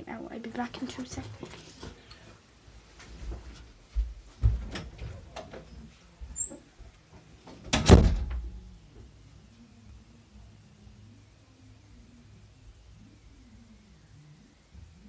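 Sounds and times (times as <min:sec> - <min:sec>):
footsteps: 0:02.9 - 0:05.3
high squeak: 0:06.4 - 0:07.2
door shutting with bang: 0:07.5 - 0:08.5.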